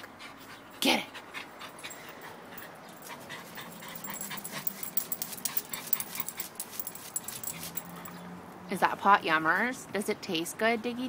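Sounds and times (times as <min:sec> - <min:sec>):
dog licking and scratching pot: 0:03.2 - 0:08.2.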